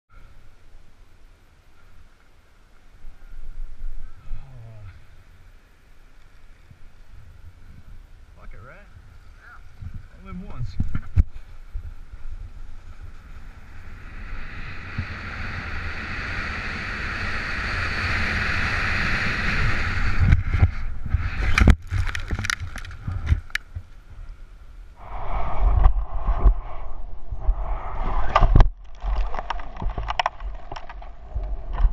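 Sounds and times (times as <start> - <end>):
wind rushing past microphone: 6.5 - 31.9
snowboard sliding over snow: 9.8 - 24.4.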